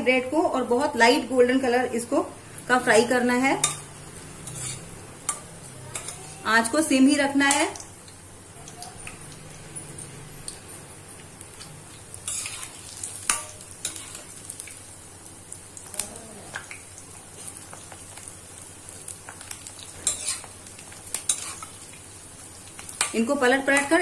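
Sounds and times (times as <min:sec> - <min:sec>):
bread frying sizzle: 0:00.0 - 0:24.0.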